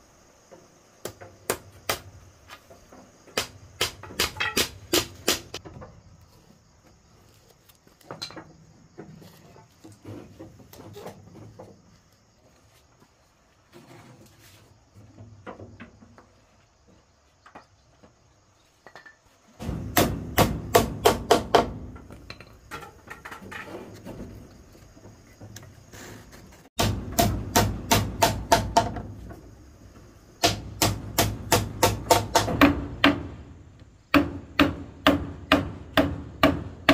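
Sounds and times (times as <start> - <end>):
hammer driving nails into wood: 26.8 - 29.0, 30.4 - 33.3.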